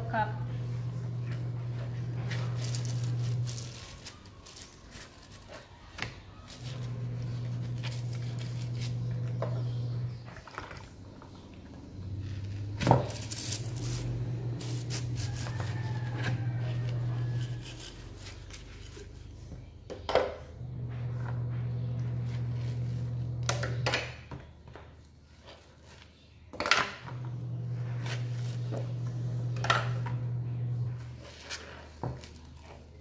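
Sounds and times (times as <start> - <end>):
steady low hum: 27.2 - 31.2.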